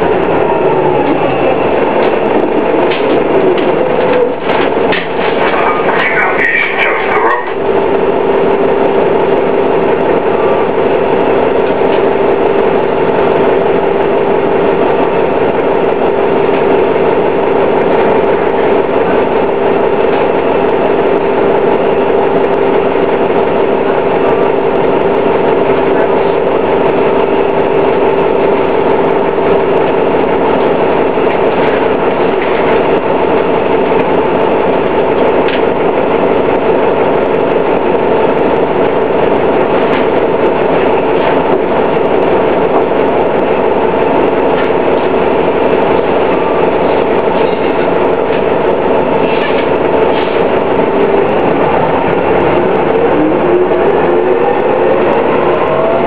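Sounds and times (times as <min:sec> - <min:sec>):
bus diesel engine running: 0:00.0 - 0:56.0
constant engine whine: 0:00.0 - 0:56.0.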